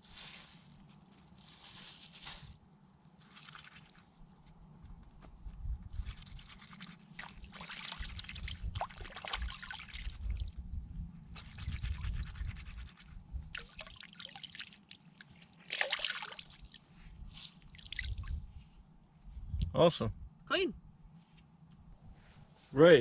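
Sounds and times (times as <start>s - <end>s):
water pouring and dripping: 6.2s - 10.4s, 13.5s - 16.8s.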